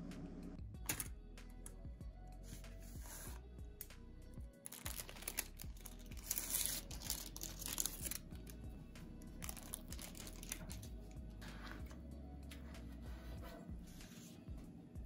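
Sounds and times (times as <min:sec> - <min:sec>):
background music: 0:00.0 - 0:15.0
baking parchment rustling: 0:04.6 - 0:08.6, 0:09.4 - 0:10.8.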